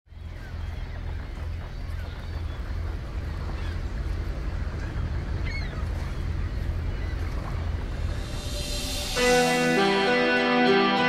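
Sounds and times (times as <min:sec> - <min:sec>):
boat engine rumble: 0:00.1 - 0:10.3.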